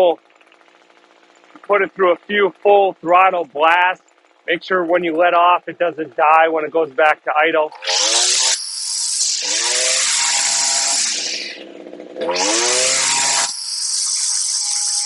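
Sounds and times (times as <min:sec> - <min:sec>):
string trimmer engine revving: 0:00.0 - 0:15.0.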